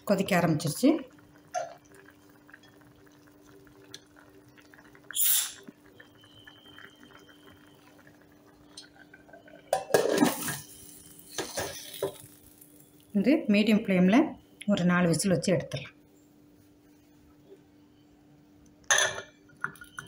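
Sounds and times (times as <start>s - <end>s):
faint steady hum: 0.0s - 20.0s
short hiss: 5.2s - 5.6s
pot lid clattering and scraping: 9.7s - 10.7s, 11.3s - 12.2s.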